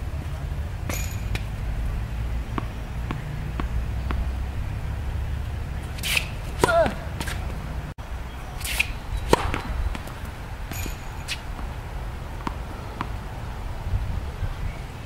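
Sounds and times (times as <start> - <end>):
racket striking tennis ball: 0.8 - 1.8, 2.4 - 7.7, 8.6 - 11.8, 12.4 - 13.2
racket swishing through air: 5.7 - 7.6, 8.6 - 11.6.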